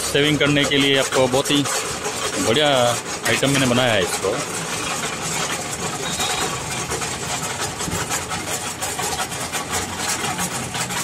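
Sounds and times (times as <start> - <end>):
cement mixer churning and rattling: 0.0 - 11.0.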